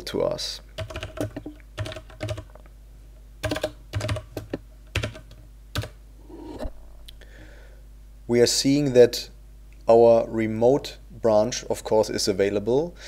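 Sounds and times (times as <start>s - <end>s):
typing on computer keyboard: 0.8s - 2.6s, 3.4s - 6.0s.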